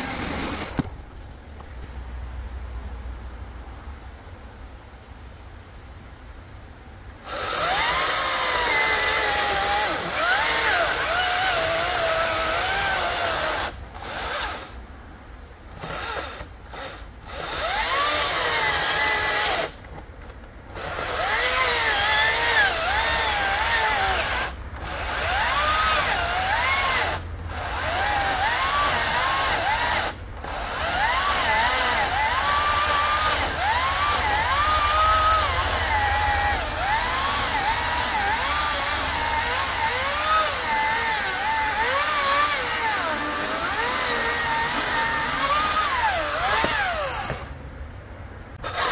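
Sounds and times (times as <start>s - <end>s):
electric chainsaw cutting log: 0.0s - 1.0s, 7.2s - 14.8s, 15.8s - 19.8s, 20.7s - 47.6s, 48.6s - 48.9s.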